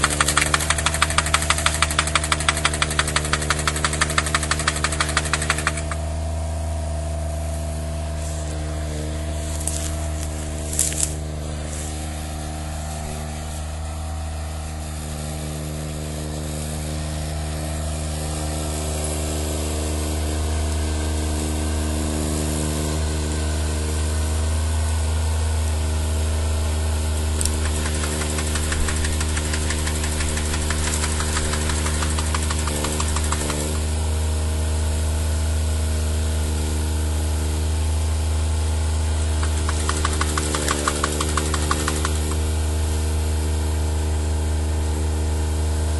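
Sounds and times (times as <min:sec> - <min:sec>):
fast rattle: 0:00.0 - 0:06.1, 0:27.4 - 0:33.9, 0:39.4 - 0:42.5
harvester engine running: 0:00.0 - 0:45.9.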